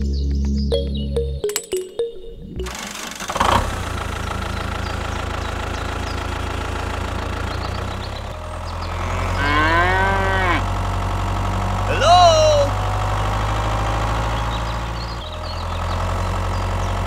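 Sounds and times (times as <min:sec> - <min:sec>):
tractor engine running: 0:02.6 - 0:17.0
long call rising and falling: 0:11.8 - 0:14.6.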